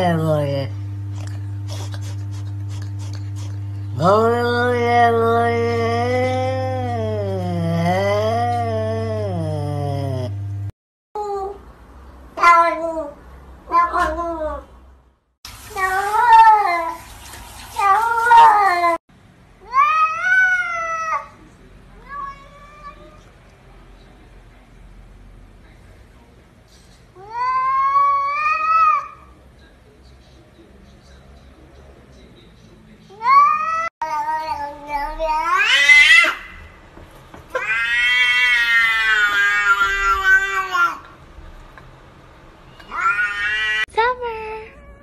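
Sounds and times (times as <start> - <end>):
cats meowing: 22.0 - 23.3, 27.2 - 29.3, 33.2 - 36.6, 37.5 - 41.1, 42.8 - 43.9.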